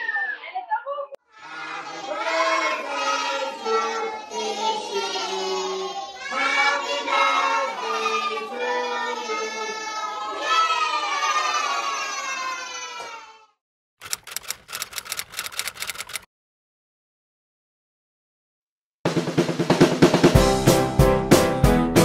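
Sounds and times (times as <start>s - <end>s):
children singing together: 1.3s - 12.3s.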